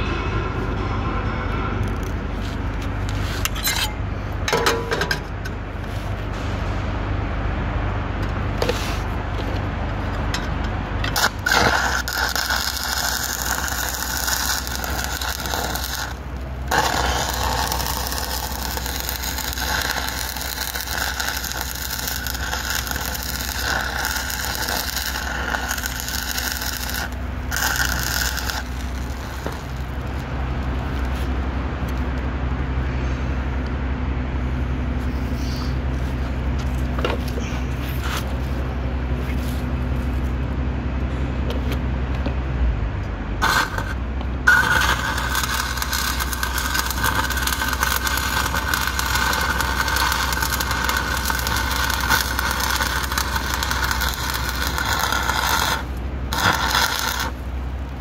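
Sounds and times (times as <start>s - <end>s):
steady low hum: 0.0s - 58.0s
welding arc crackling: 11.0s - 32.1s, 43.4s - 58.0s.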